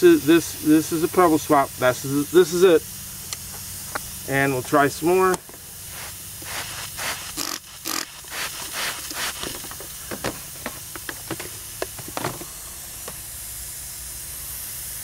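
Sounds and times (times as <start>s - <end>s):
steady hiss: 0.0s - 15.0s
spray bottle squirting: 5.8s - 12.2s.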